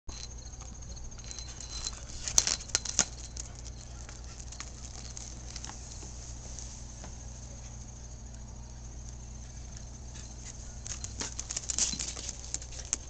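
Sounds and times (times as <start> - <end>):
dog claws clicking on concrete: 0.2 - 6.0, 10.1 - 13.0.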